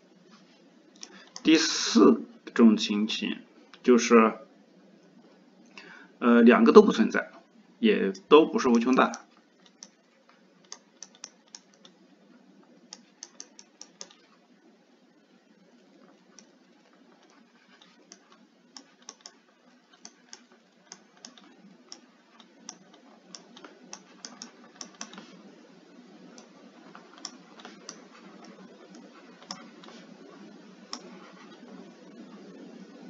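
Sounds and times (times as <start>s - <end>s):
steady low hiss: 0.0s - 33.0s
stylus tapping on screen: 13.0s - 14.3s.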